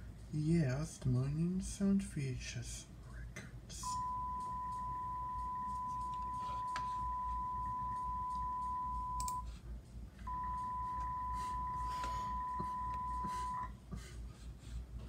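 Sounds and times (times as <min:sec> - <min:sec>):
high-pitched beep tone: 0:03.8 - 0:09.4.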